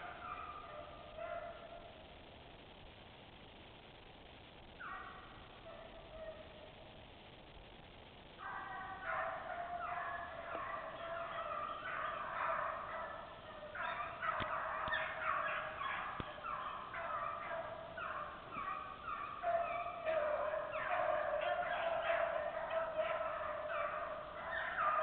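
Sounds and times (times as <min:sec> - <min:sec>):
pack of dogs baying: 0:08.4 - 0:25.0.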